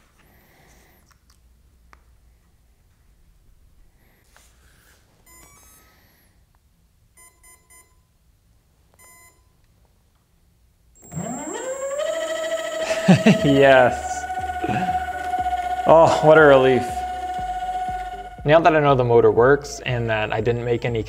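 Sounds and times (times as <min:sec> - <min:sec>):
electronic beep tones from motor: 0:05.3 - 0:05.8, 0:07.2 - 0:08.0, 0:11.0 - 0:21.0
motor whine spinning up: 0:11.0 - 0:21.0.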